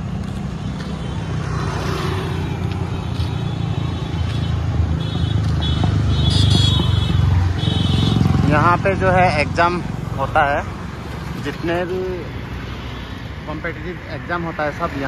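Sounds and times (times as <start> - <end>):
cars on a city road: 0.0 - 15.0.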